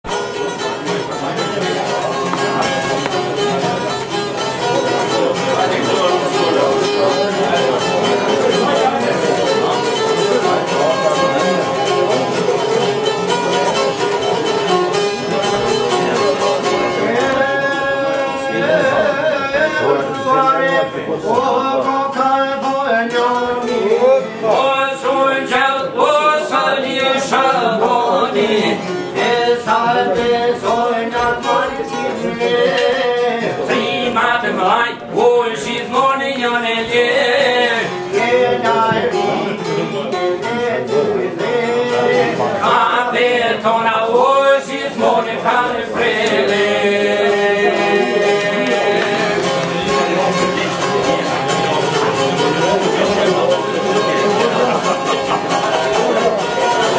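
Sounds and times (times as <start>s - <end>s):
plucked lutes playing: 0.1s - 56.9s
man singing: 15.1s - 56.9s.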